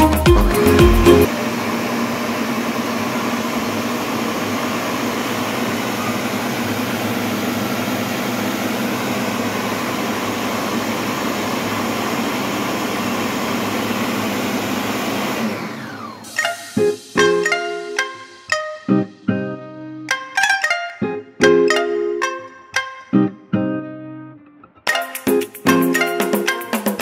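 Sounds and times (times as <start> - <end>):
blender motor running: 0.6 - 17.4.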